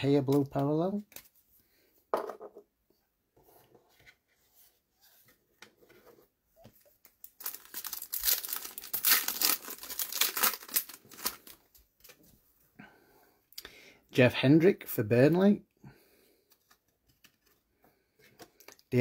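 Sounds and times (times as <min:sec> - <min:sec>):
foil wrapper tearing and crinkling: 0:07.3 - 0:11.6.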